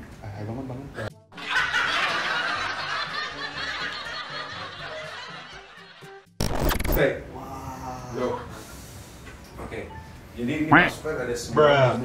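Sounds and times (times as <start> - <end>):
laughter: 1.4 - 6.2.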